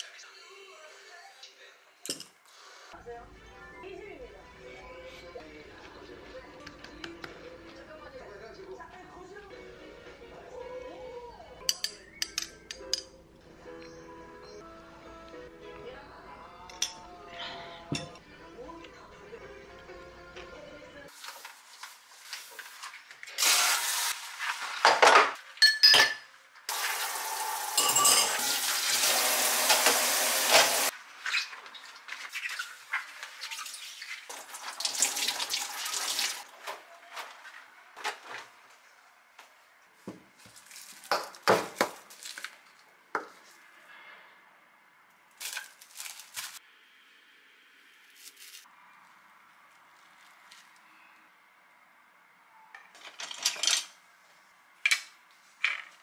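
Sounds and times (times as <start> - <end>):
dishes and cutlery clinking: 17.9 - 18.2, 24.8 - 26.4, 27.8 - 28.6
tap water running: 26.7 - 30.9, 32.6 - 36.4
plastic wrap crinkling: 40.4 - 42.9, 45.3 - 46.6.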